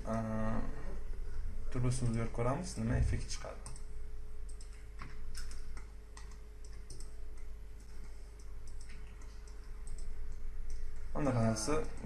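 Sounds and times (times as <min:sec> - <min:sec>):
faint electrical hum: 0:00.0 - 0:12.0
mouse and keyboard clicks: 0:04.5 - 0:10.1.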